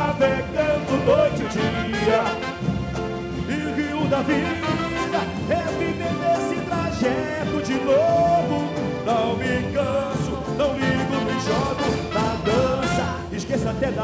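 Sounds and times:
live band playing: 0.0s - 14.0s.

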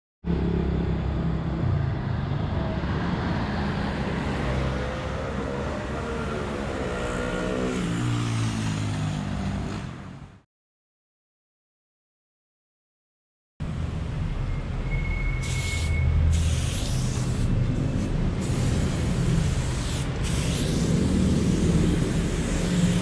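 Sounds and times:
motor vehicle engines running: 13.6s - 23.0s.

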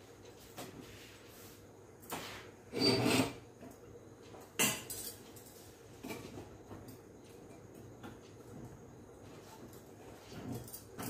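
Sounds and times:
metal cookware clattering and scraping: 2.7s - 3.4s.

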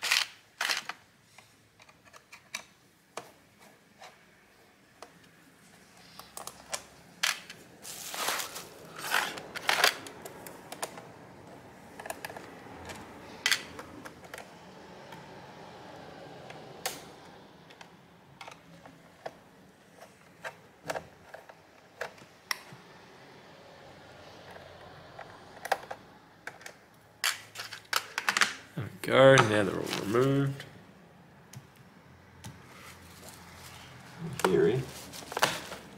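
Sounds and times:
handling noise: 5.0s - 15.3s, 32.4s - 35.9s.

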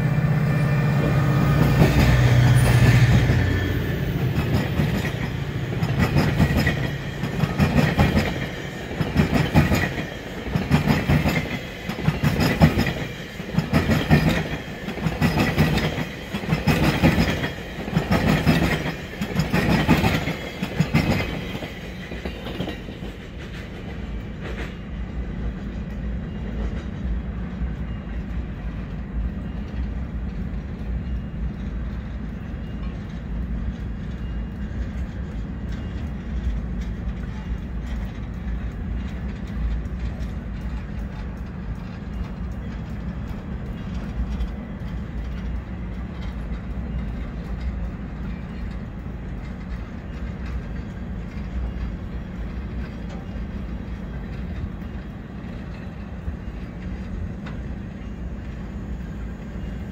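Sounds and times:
train coaches rolling past: 0.0s - 59.9s
wheels clacking over rails: 1.0s - 27.1s.

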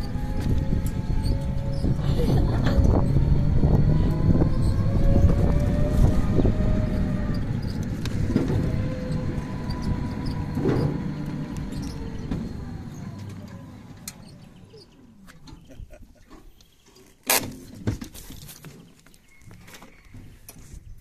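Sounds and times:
electric motor whine: 0.0s - 14.6s
tyre rumble on rough road: 0.0s - 14.7s.

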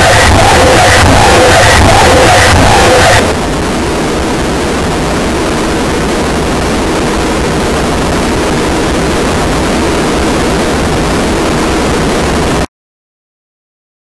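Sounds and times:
harsh noise music: 0.0s - 3.8s.

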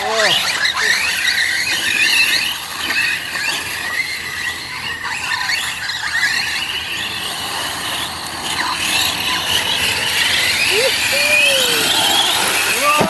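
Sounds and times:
rc truck motors whining: 0.0s - 13.0s
tyres hissing on dirt: 6.5s - 13.0s.

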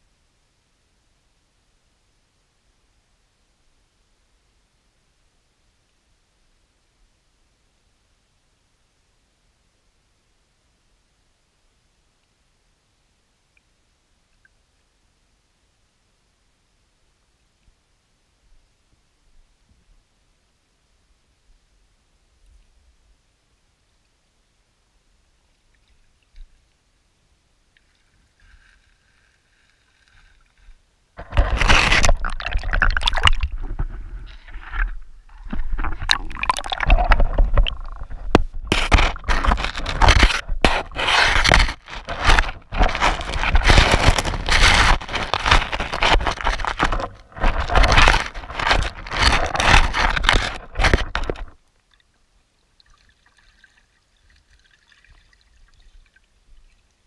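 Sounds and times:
muffled underwater scraping and knocking: 28.5s - 51.6s.

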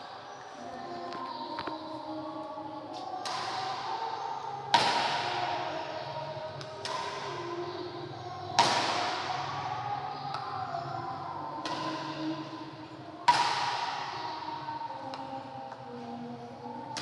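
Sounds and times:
badminton racket hitting shuttlecock: 2.9s - 3.9s, 6.6s - 7.4s, 11.6s - 12.2s, 13.3s - 14.2s.

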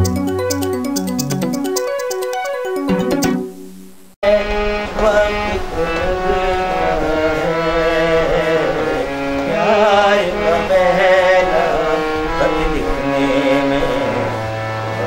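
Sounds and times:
harmonium chords: 0.0s - 15.0s
man singing: 4.2s - 14.4s.

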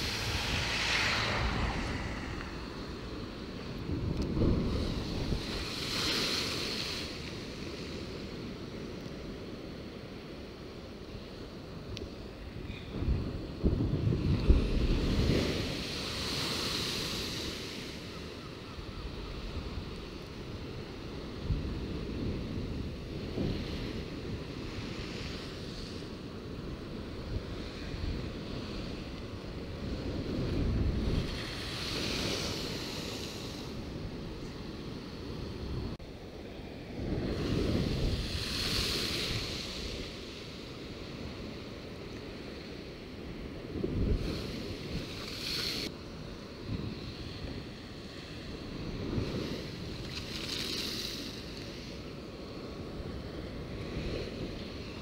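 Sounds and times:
waves breaking against sea wall: 0.0s - 8.7s, 14.1s - 18.4s, 19.4s - 35.4s, 37.0s - 42.8s, 43.5s - 55.0s
wind buffeting microphone: 0.0s - 10.4s, 11.4s - 36.0s, 36.6s - 55.0s
waves breaking against a wall: 21.0s - 33.9s.

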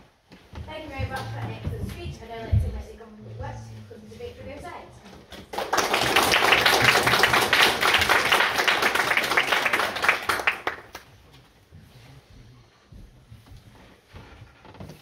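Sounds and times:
audience applauding: 5.4s - 11.1s.

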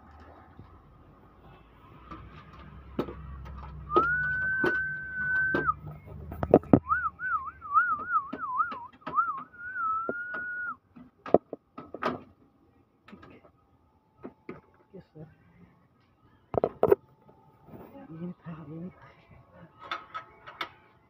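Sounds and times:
person whistling a tune: 3.9s - 5.8s, 6.8s - 10.8s.

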